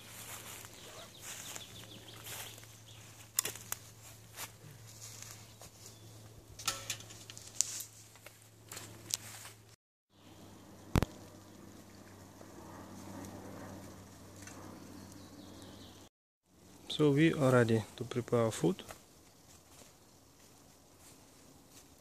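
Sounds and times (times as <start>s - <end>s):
campfire crackling: 0.0s - 5.4s, 10.3s - 17.1s
sharp pops from fire: 10.9s - 11.2s.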